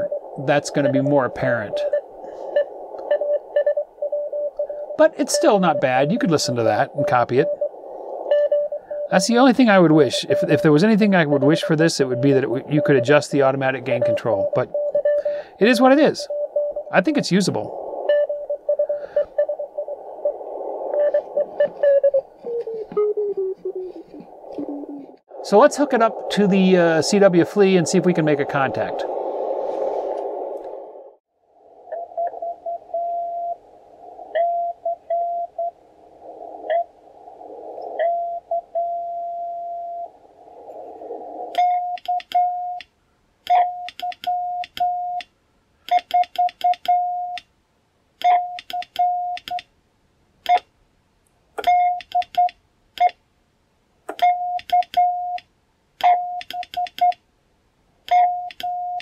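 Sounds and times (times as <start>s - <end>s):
morse code sidetone beeps: 0.0s - 9.3s, 10.0s - 17.3s, 18.0s - 24.0s, 31.9s - 33.6s, 34.3s - 35.8s, 36.7s - 36.9s, 38.0s - 40.1s, 41.6s - 42.8s, 43.5s - 45.2s, 45.9s - 47.4s, 48.2s - 49.6s, 51.6s - 53.2s, 54.1s - 55.4s, 56.0s - 57.2s, 58.1s - 59.0s
faint morse code: 0.0s - 24.9s, 41.6s - 42.9s, 43.5s - 45.3s, 45.9s - 47.4s, 48.2s - 49.7s, 51.6s - 53.2s, 54.2s - 57.2s, 58.1s - 59.0s
shortwave receiver hiss: 0.0s - 45.9s.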